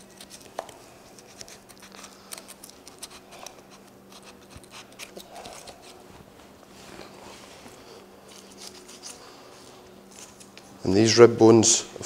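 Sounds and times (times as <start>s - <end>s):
knife scraping along bones: 0.0s - 6.0s, 8.3s - 9.3s
steady low hum: 0.0s - 12.0s.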